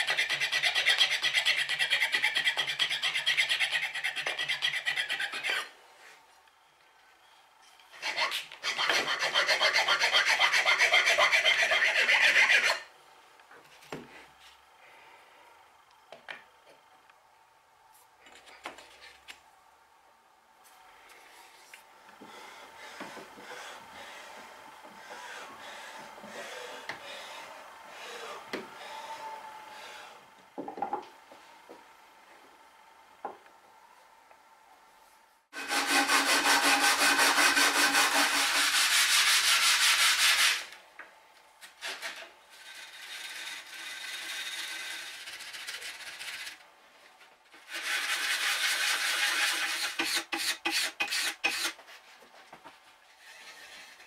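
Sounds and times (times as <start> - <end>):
metal file scraping wood: 0.0 - 5.8, 7.9 - 12.9, 35.5 - 40.8, 47.6 - 51.8, 53.1 - 54.0.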